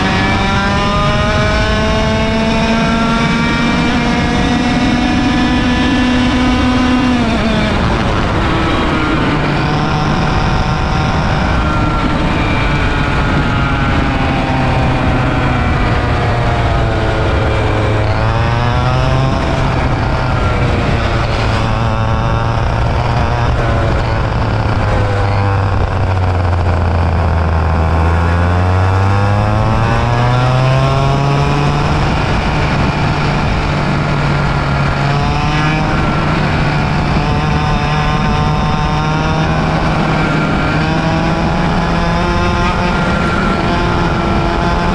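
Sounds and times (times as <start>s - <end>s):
kart engine buzzing: 0.0s - 44.9s.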